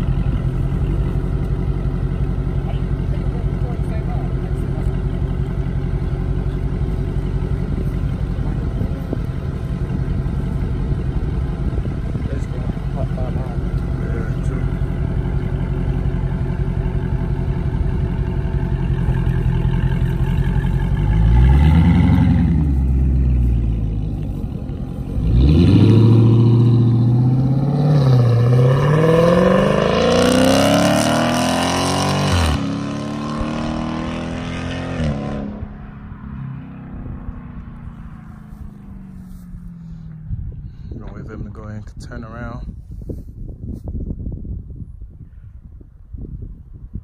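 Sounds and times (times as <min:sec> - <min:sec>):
car accelerating away: 0:00.0 - 0:40.8
car engine idling and revving: 0:00.0 - 0:43.8.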